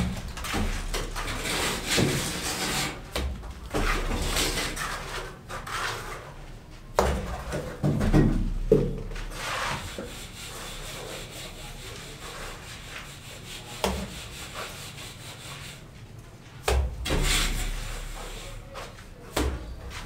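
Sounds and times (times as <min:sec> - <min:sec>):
trowel scraping mortar from bucket: 0:03.8 - 0:06.4, 0:17.1 - 0:18.7
mortar slapping onto wall: 0:06.9 - 0:10.1, 0:16.6 - 0:18.4.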